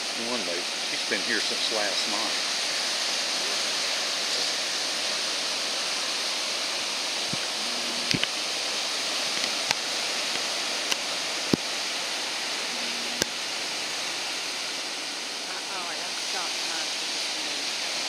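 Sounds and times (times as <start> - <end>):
ocean surf breaking: 6.8 - 17.7.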